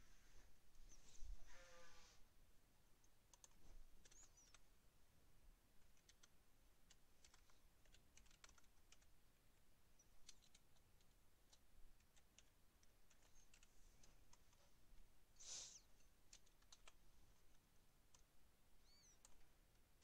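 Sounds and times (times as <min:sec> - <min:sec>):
keyboard typing: 0:03.0 - 0:04.6, 0:05.8 - 0:09.1, 0:10.0 - 0:14.5, 0:16.3 - 0:19.4.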